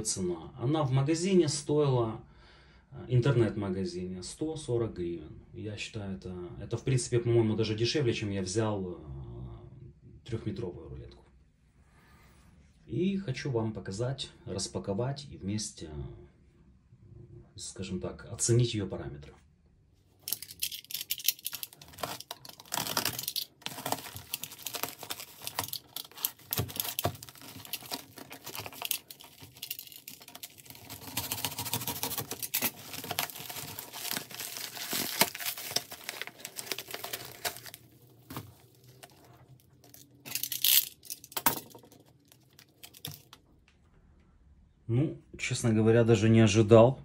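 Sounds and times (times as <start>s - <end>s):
packaging crinkling and tearing: 20.2s - 43.4s.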